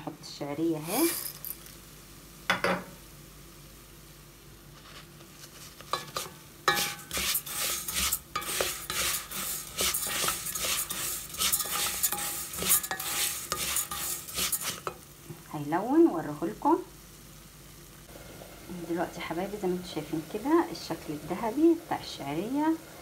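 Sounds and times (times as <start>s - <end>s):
light sizzle: 0.0s - 23.0s
grains scraping in a metal pot: 0.8s - 1.6s, 4.8s - 15.0s.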